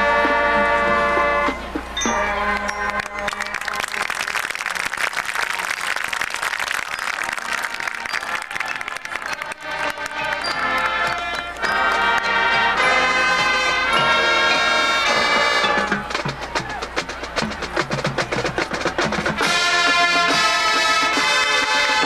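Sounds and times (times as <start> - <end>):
marching band horns chords: 0.0 - 22.0
drum line rapid strikes: 15.0 - 22.0.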